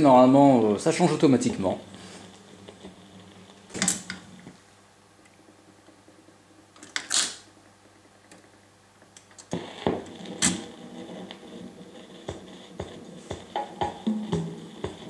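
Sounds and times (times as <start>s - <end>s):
vinyl groove crackling: 0.0s - 6.8s, 7.4s - 15.0s
record changer cycling: 1.2s - 15.0s
record dropping clack: 13.4s - 15.0s.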